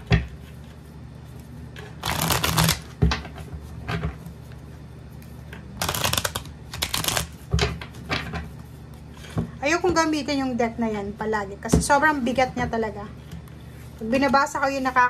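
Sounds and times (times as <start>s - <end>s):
cards riffle-shuffled: 2.0s - 2.9s, 5.8s - 7.4s.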